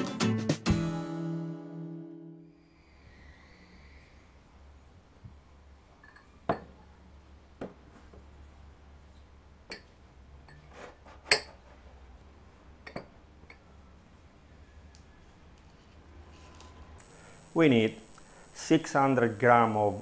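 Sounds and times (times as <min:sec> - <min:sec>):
ceramic bowls set on a table: 0:02.8 - 0:17.0.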